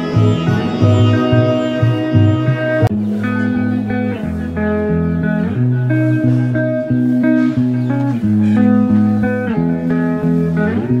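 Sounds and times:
guitar-led instrumental music: 0.0 - 11.0.

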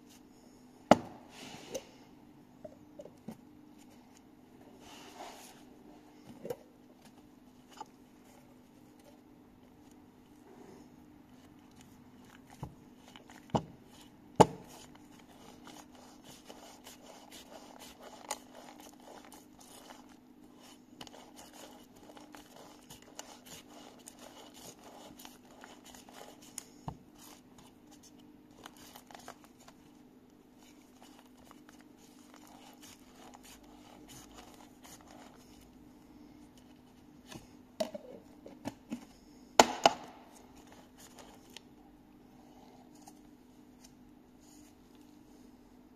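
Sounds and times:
rubbing and crinkling of glove: 11.3 - 35.8.

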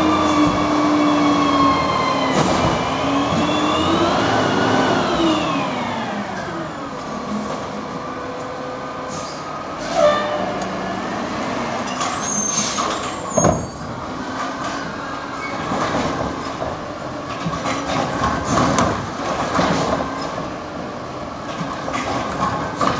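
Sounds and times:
diesel engine revving: 0.0 - 9.9, 10.5 - 11.9.

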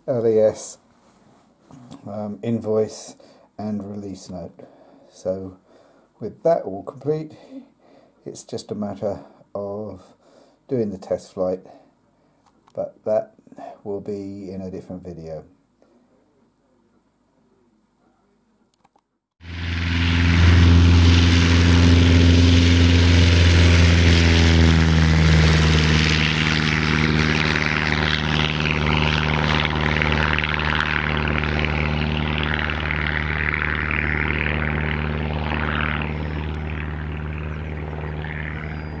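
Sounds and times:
light aircraft engine drone: 19.4 - 39.0.

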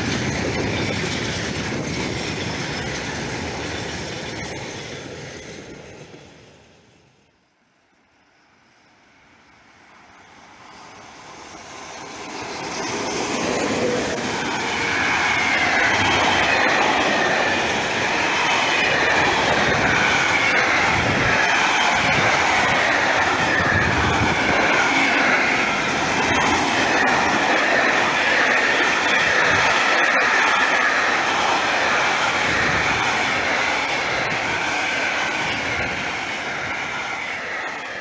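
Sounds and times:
freight train passing: 0.0 - 38.0
high ringing from wheels: 7.9 - 20.8.

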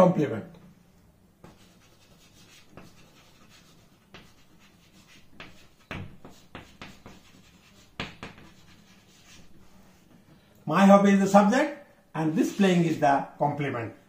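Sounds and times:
pen scratching while writing: 1.5 - 9.6.

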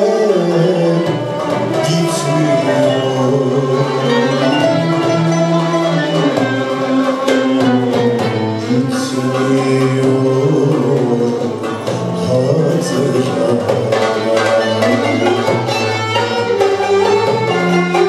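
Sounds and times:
man singing: 0.0 - 6.4, 8.4 - 16.0
ensemble with violins: 0.0 - 18.0.

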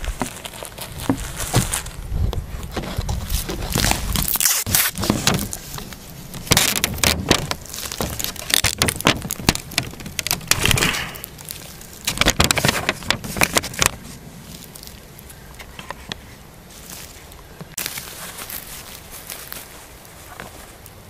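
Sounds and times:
crackling handling noise: 0.0 - 21.0
adhesive tape pulled and torn: 3.4 - 14.0.

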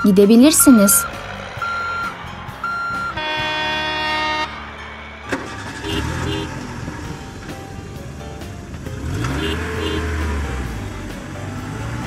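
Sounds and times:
backing-up alarm beeps: 0.0 - 4.5
car horn: 0.0 - 7.0, 9.1 - 10.4.

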